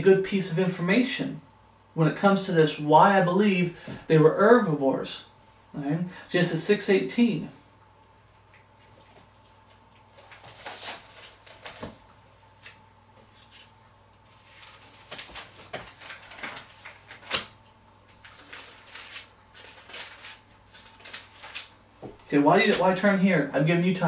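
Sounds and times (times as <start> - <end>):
book pages flipping: 8.8 - 12.0, 12.6 - 23.0.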